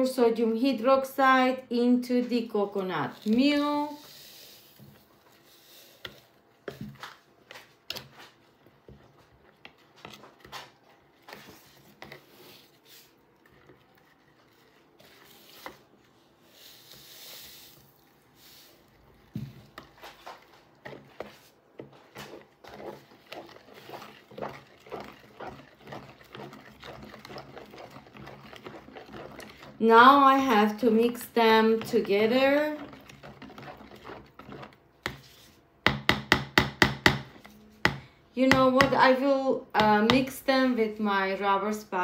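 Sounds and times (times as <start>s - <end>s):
spatula stirring in plastic pitcher: 0.5s - 41.3s
spatula knocking on pitcher: 35.8s - 39.0s.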